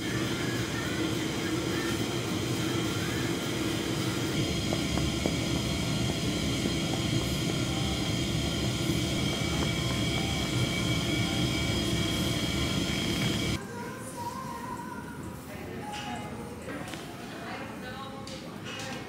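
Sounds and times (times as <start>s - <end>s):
constant hum: 0.0s - 13.6s
low store background roar: 0.0s - 19.0s.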